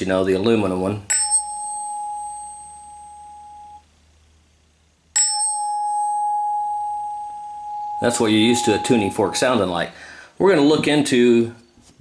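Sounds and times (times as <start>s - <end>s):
tuning fork ringing: 1.1s - 3.9s, 5.1s - 9.6s.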